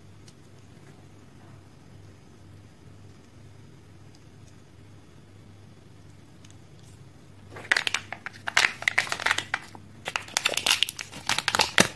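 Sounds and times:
plastic packaging crinkling: 7.5s - 11.9s.

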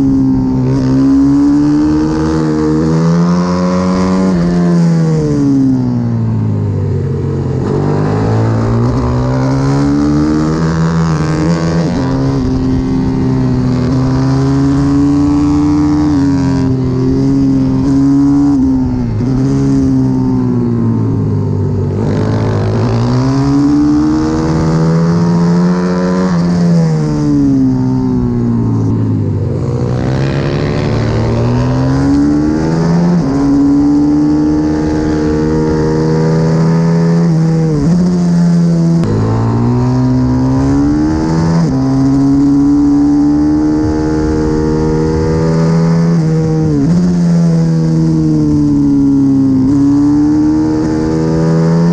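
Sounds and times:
pit bike engine revving: 7.6s - 20.1s, 29.6s - 51.9s.

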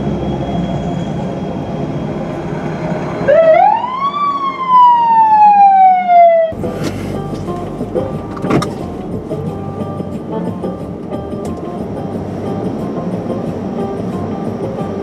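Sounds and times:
fire truck siren wail: 0.0s - 6.6s
steady low rumble: 6.6s - 15.0s.

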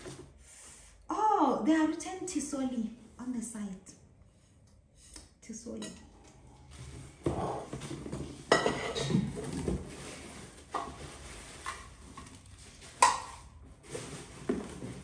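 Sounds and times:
metal pots clattering: 8.4s - 9.8s
plastic wrapping rustling: 9.1s - 15.0s.

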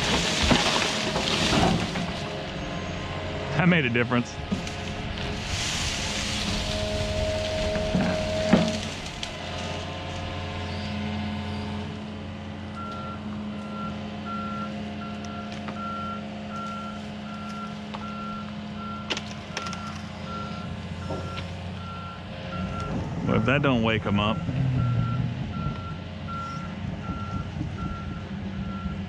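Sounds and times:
excavator diesel engine running: 0.0s - 29.0s
reversing alarm beeps: 6.5s - 9.0s, 12.8s - 29.0s.

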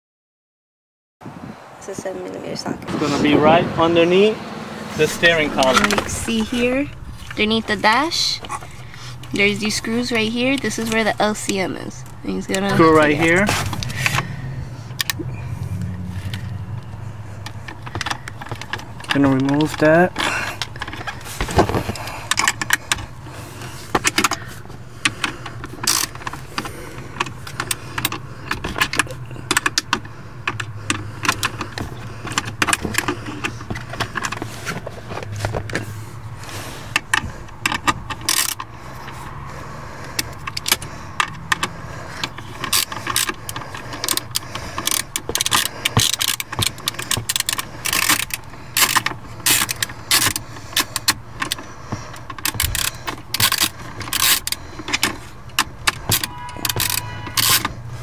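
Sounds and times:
steady low hum: 2.9s - 58.0s
ratchet clicking: 23.7s - 34.4s, 36.9s - 39.2s, 40.1s - 57.9s.

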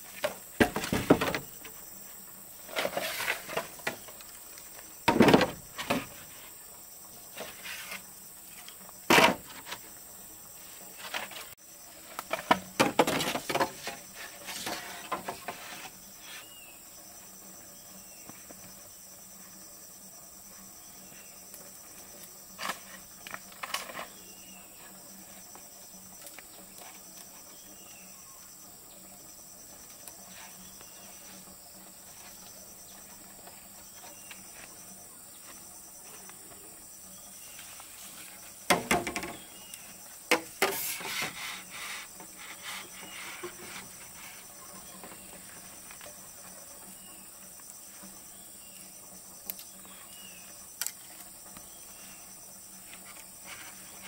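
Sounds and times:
handling knocks and rustles: 0.0s - 1.8s, 2.6s - 6.5s, 10.8s - 16.5s
high-pitched insect chorus: 0.0s - 54.0s.

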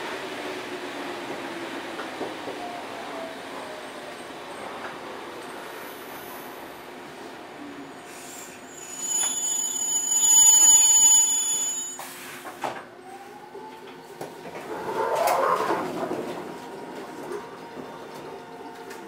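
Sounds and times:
railcar rumbling: 0.0s - 19.0s
wheels squealing: 8.6s - 12.2s.

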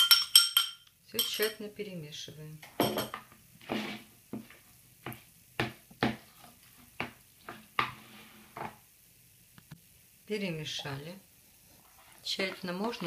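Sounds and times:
spoon stirring squelching mixture: 10.8s - 13.0s.

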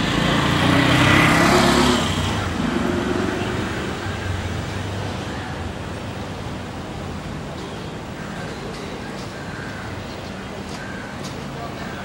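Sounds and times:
vehicle engine passing: 0.0s - 4.7s
traffic hum: 0.0s - 12.0s.

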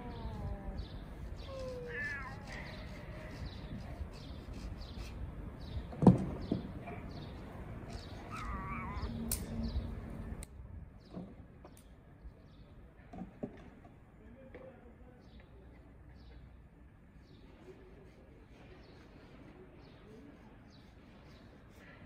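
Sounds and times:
cats meowing: 0.0s - 3.4s, 8.2s - 9.1s.

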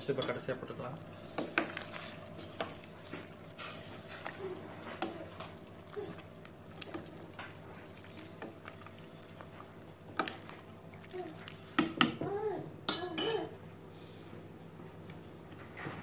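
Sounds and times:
steady low hum: 0.0s - 15.9s
soup simmering: 0.8s - 12.2s.

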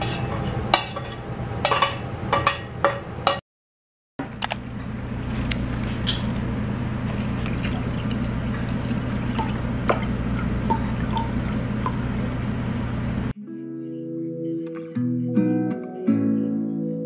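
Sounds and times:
low hum: 4.2s - 13.3s.

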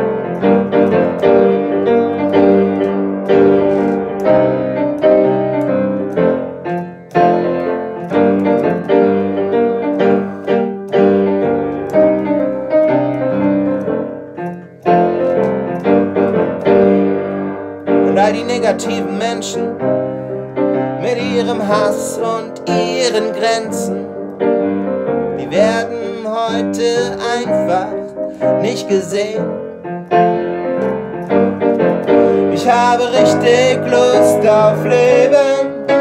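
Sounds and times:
solo piano: 0.0s - 36.0s.

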